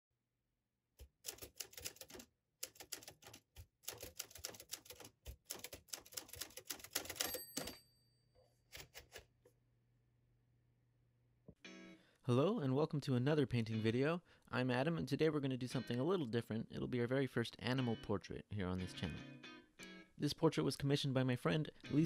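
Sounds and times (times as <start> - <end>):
typewriter keys clacking: 1.0 - 7.8
typewriter bell ringing: 7.0 - 8.1.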